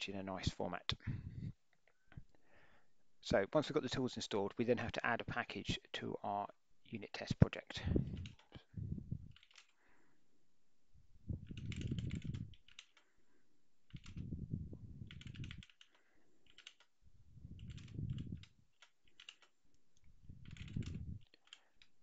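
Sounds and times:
computer keyboard typing: 9.3s - 9.8s, 11.4s - 13.2s, 13.9s - 14.3s, 15.0s - 16.9s, 17.5s - 22.0s.

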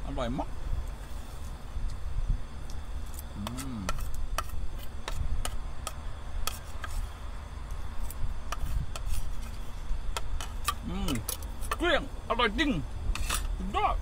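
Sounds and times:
spoon scraping a plate: 3.1s - 7.1s, 8.0s - 9.8s, 13.1s - 13.6s.

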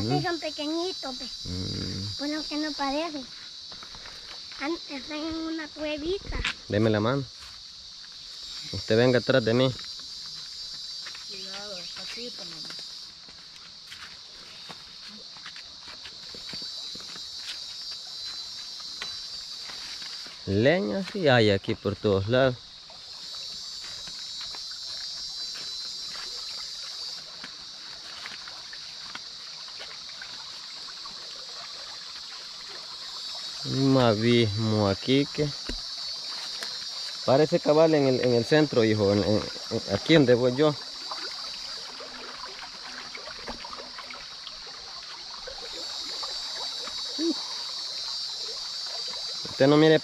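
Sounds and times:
high insect drone: 0.0s - 50.0s
short low vocal sound: 1.4s - 2.1s
footsteps crunching through leaves: 9.9s - 21.2s, 23.4s - 30.6s
steady high hiss: 33.0s - 42.1s, 45.5s - 50.0s.

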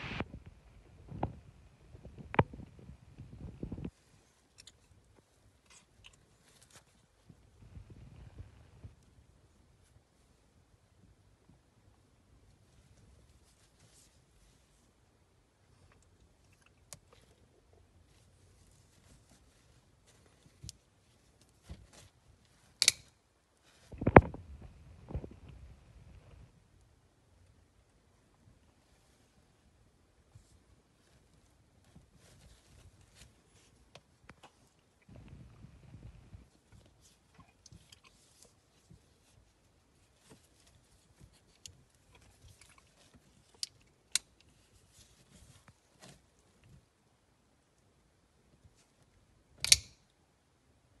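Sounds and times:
folding knife clicks and snaps: 22.8s - 23.1s, 49.6s - 50.0s.

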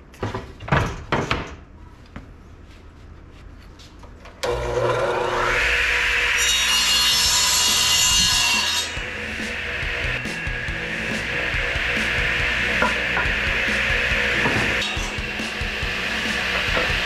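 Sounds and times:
saw blade cutting wood: 4.4s - 17.0s
saw motor spinning up: 8.9s - 17.0s.

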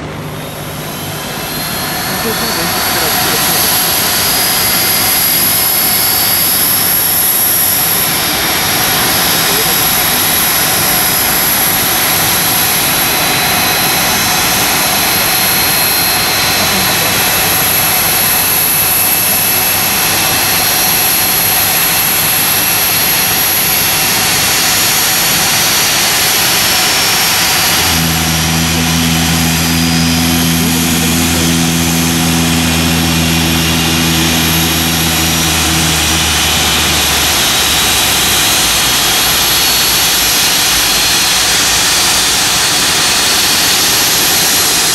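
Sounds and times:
jet engines idling: 0.0s - 44.9s
low steady hum: 27.3s - 41.8s.

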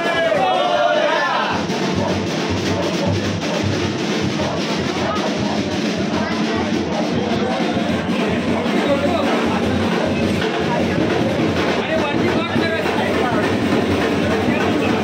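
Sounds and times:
drum-heavy music: 0.0s - 15.0s
voices: 0.0s - 15.0s.

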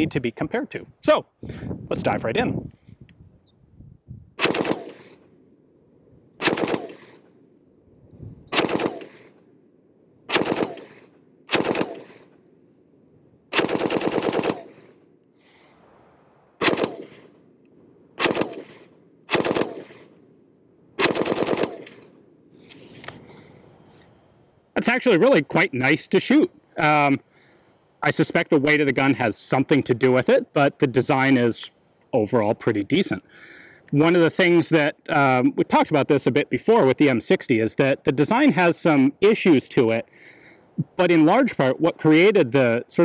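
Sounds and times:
machine gun firing bursts: 4.4s - 5.2s, 6.4s - 7.3s, 8.5s - 9.4s, 10.3s - 12.4s, 13.5s - 15.0s, 16.6s - 17.3s, 18.2s - 20.1s, 21.0s - 22.1s
gunfire echo: 4.4s - 5.3s, 6.4s - 7.4s, 8.5s - 9.5s, 10.3s - 12.4s, 13.5s - 15.1s, 16.6s - 17.4s, 18.2s - 20.2s, 21.0s - 22.2s.

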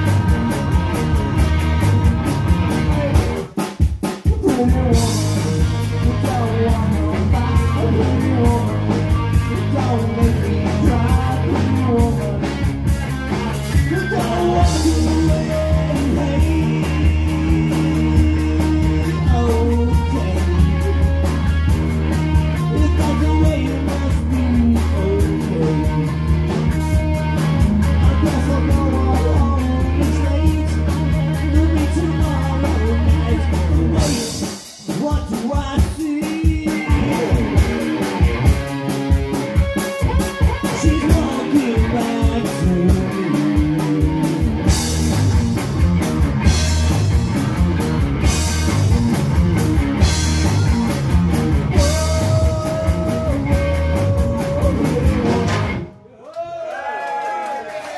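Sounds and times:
person singing: 0.0s - 3.5s, 4.3s - 21.3s, 22.5s - 26.5s, 27.4s - 37.8s, 40.4s - 44.6s, 51.7s - 55.6s
drum kit: 0.0s - 56.0s
electric guitar: 0.0s - 56.0s
bass guitar: 0.0s - 56.1s.

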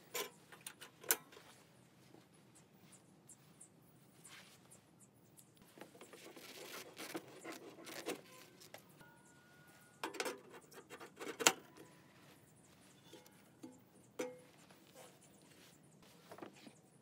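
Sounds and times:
metal pipe scraping and clinking: 7.4s - 15.4s.

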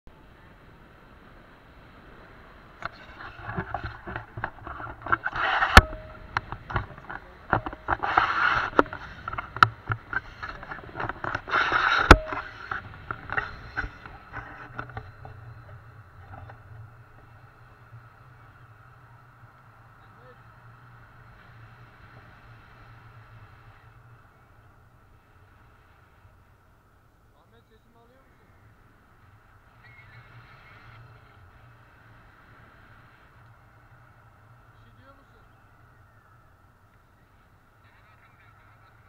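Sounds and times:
wind on microphone: 0.4s - 19.2s
camera pole clicks and knocks: 2.8s - 15.3s.

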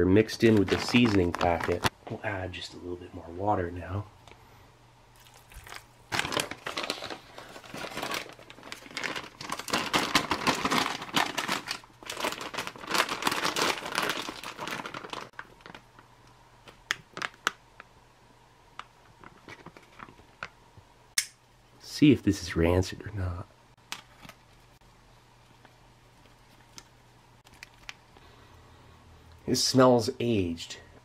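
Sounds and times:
plastic pouch crinkling: 0.3s - 1.9s, 5.2s - 16.1s, 16.7s - 17.6s, 26.1s - 28.1s.

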